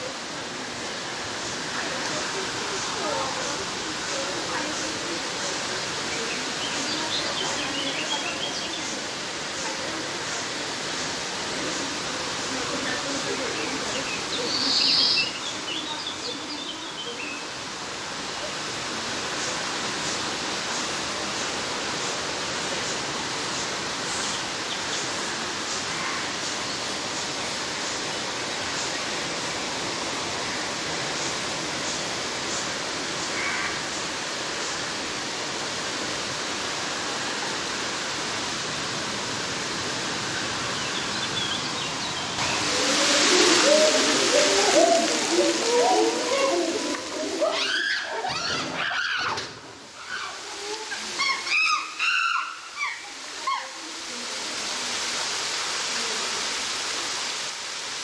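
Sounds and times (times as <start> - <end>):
people's voices: 0.0 - 19.7, 42.4 - 49.1
waterfall rushing into pool: 0.0 - 58.0.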